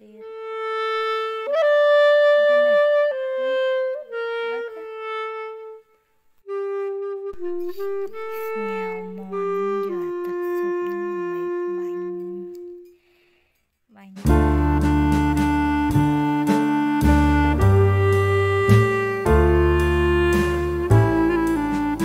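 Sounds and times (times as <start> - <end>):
slow woodwind melody: 0.0 - 13.0, 14.2 - 22.0.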